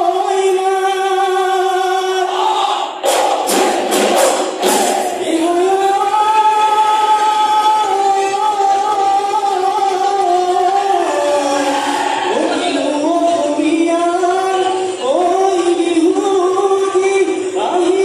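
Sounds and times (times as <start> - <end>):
voices singing together: 0.0 - 18.0
sharp dhol strokes: 3.0 - 5.2.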